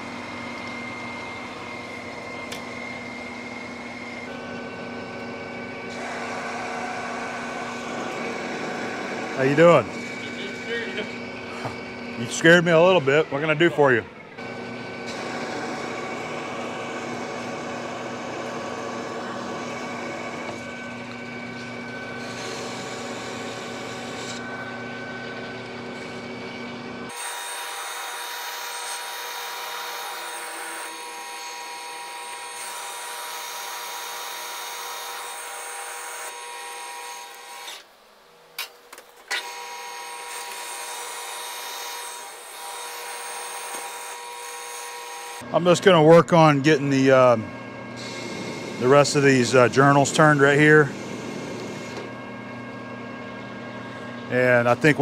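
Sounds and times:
low machine hum: 0.0s - 27.2s, 45.3s - 55.0s
metal lathe whine: 0.0s - 37.9s, 39.3s - 55.0s.

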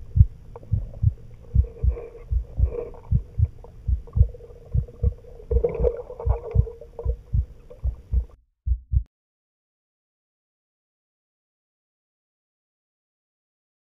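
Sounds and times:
faint bubbling: 0.0s - 8.3s
steady underwater hum: 0.0s - 8.4s
muffled underwater thuds: 0.1s - 9.1s.

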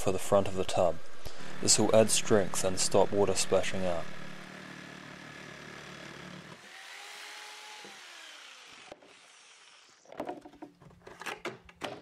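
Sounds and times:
power saw cutting plywood: 0.3s - 10.3s
saw motor winding down: 0.4s - 10.1s
plywood knocks and clatter: 10.1s - 12.0s.

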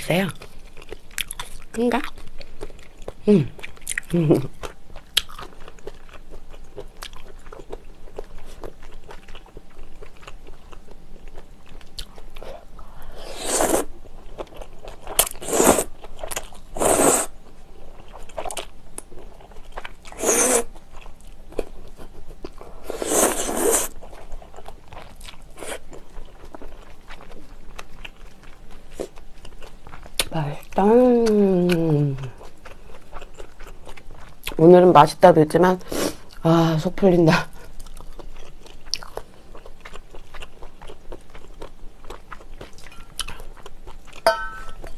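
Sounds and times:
wet chewing with mouth clicks: 0.4s - 12.8s, 13.7s - 34.7s, 37.5s - 44.9s
loud noodle slurps: 13.2s - 13.9s, 15.4s - 15.9s, 16.8s - 17.3s, 20.2s - 20.7s, 22.9s - 24.0s.

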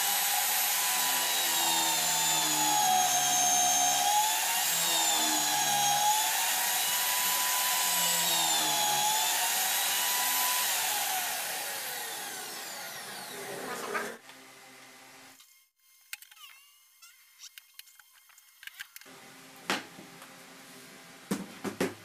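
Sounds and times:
electric drill drilling into wood: 0.0s - 13.6s.

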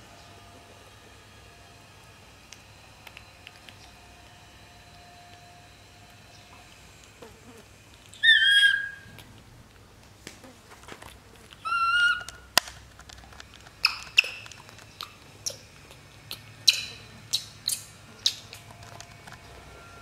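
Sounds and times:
monkey chirps and clicks: 2.5s - 4.0s, 7.9s - 9.5s, 11.0s - 19.4s
baby monkey crying: 8.1s - 9.2s, 11.6s - 12.5s.

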